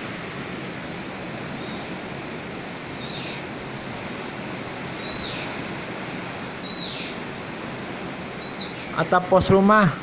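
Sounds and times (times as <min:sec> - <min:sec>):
heavy rain pouring: 0:00.0 - 0:10.0
strong wind: 0:00.0 - 0:10.0.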